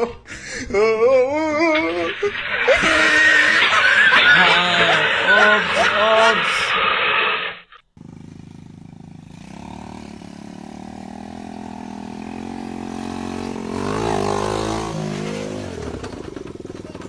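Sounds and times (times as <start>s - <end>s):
quad engine running and revving: 8.0s - 17.0s.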